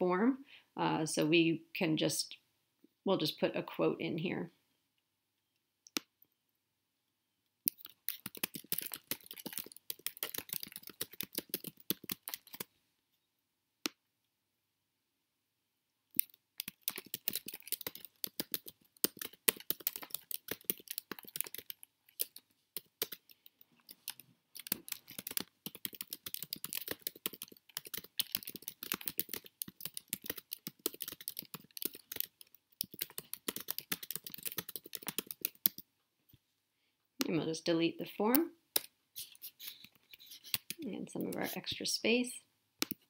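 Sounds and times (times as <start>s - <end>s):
keyboard typing: 7.7s - 12.7s, 16.2s - 35.8s, 38.8s - 41.7s.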